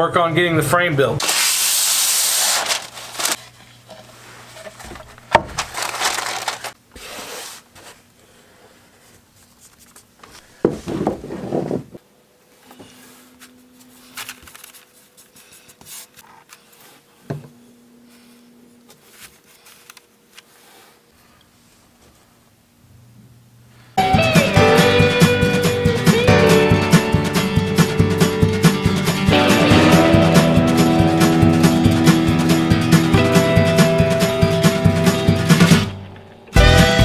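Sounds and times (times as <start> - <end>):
paper crinkling and tearing: 1.2 - 3.7, 4.4 - 7.7.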